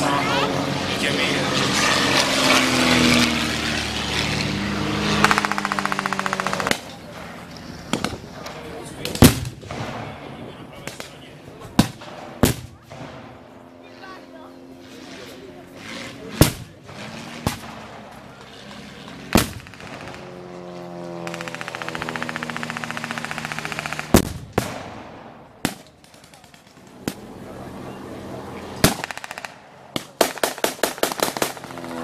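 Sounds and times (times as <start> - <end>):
propeller plane engine drone: 0.0 - 32.0
machine-gun burst: 5.2 - 6.8, 19.3 - 20.4, 21.2 - 24.9, 28.8 - 29.5, 30.2 - 32.0
pyrotechnic bangs: 5.2 - 13.7, 16.2 - 18.4, 19.2 - 20.5, 21.2 - 27.2, 28.8 - 32.0
blank gunshots: 7.9 - 13.5, 16.3 - 18.1, 19.3 - 20.4, 21.2 - 27.2, 28.8 - 32.0.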